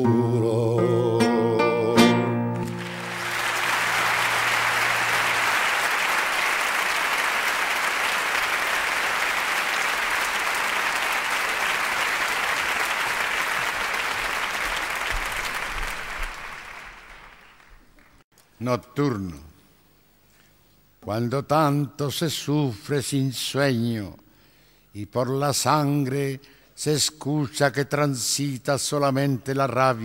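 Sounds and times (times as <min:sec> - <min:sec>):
audience applauding: 0:02.6 - 0:18.2.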